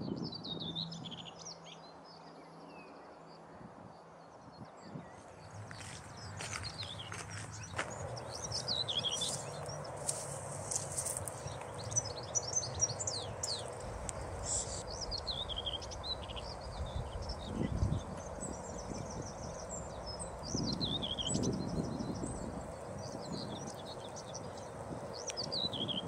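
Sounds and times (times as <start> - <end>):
songbirds chirping and trilling: 0.0 - 26.0
outdoor hiss: 13.5 - 15.2.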